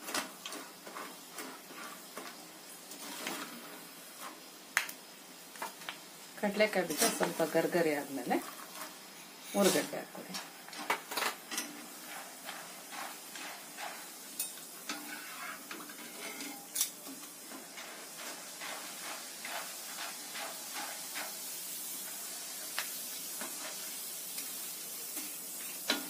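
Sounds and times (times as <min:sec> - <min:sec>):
deep-frying sizzle: 0:00.0 - 0:26.0
metal ladle scraping mesh: 0:11.5 - 0:17.0.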